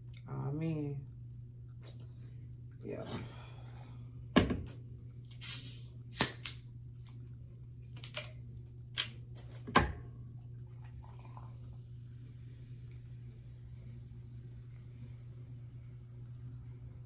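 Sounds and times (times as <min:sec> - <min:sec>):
steady low hum: 0:00.0 - 0:17.0
soda pouring over ice: 0:10.8 - 0:11.9.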